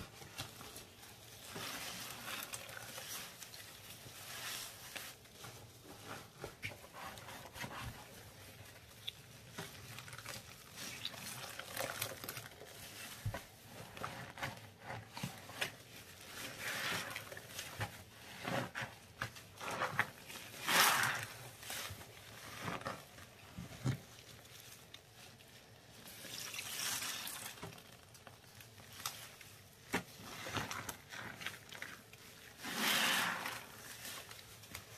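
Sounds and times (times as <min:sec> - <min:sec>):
bubbles crackling and popping: 0:09.8 - 0:13.6.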